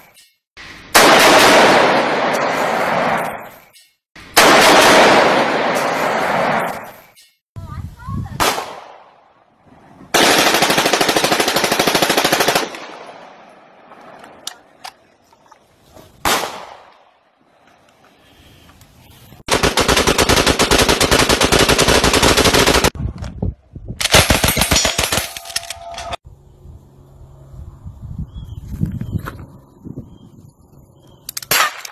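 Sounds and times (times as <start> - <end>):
single gunshots: 0.9 - 3.2, 4.3 - 6.7, 8.4 - 9.2, 16.2 - 16.9
rapid gunfire bursts: 10.2 - 12.8, 19.5 - 23.0.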